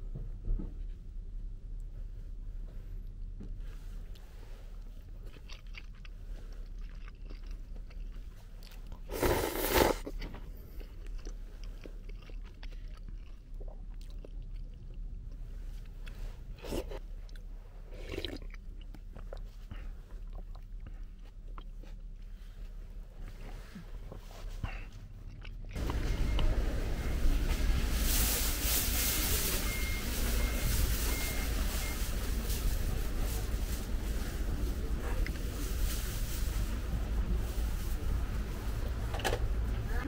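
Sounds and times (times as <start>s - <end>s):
soft chewing: 1.8s - 27.3s, 29.6s - 36.1s
slurping broth: 9.0s - 10.2s, 17.8s - 18.6s.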